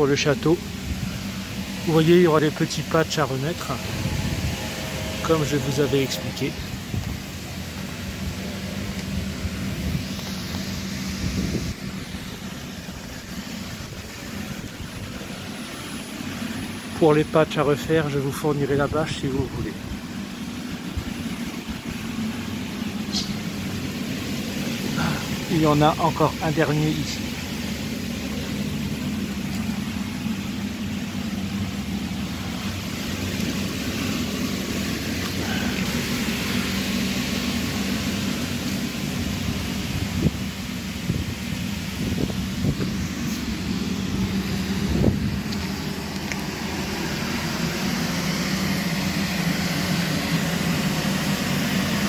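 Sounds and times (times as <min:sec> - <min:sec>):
blower fan humming: 0:00.0 - 0:17.9, 0:18.5 - 0:52.0.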